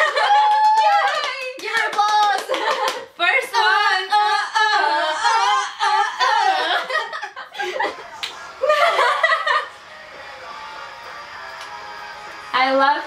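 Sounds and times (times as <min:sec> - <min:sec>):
women laughing and squealing: 0:04.4 - 0:09.8
faint music: 0:07.5 - 0:13.0.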